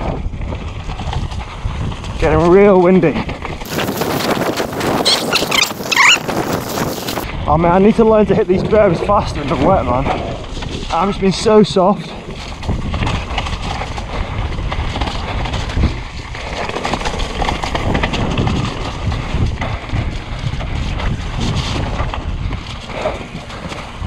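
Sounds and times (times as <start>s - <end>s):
wind buffeting microphone: 0.0s - 24.0s
tyre noise on dirt: 3.3s - 7.3s, 12.2s - 24.0s.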